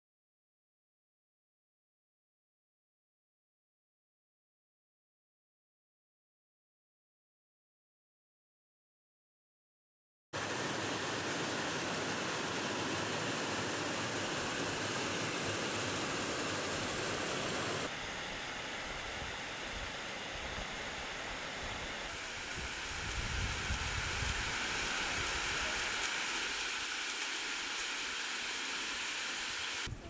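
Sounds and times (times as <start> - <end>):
water rushing over rocks: 10.4 - 18.2, 19.6 - 29.9.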